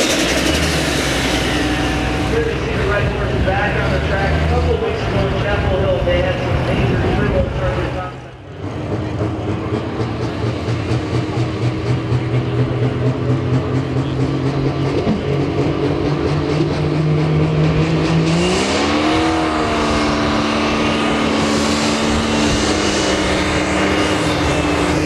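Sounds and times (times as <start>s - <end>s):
diesel tractor engine revving: 0.0s - 25.0s.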